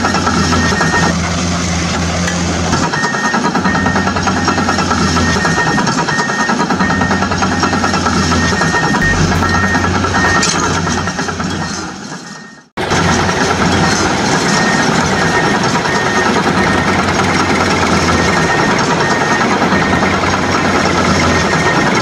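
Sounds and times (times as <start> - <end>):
heavy engine running: 0.0 - 22.0
faint high tone: 9.0 - 10.7.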